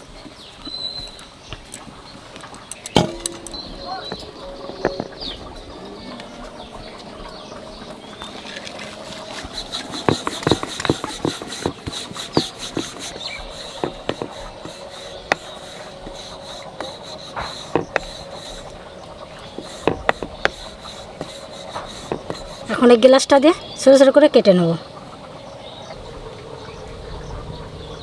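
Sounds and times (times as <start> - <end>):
faint steady hum: 0.0 - 28.0
rolling pin rubbing on dough: 9.1 - 23.0
rolling pin clicks and knocks: 9.4 - 18.8, 19.4 - 22.6.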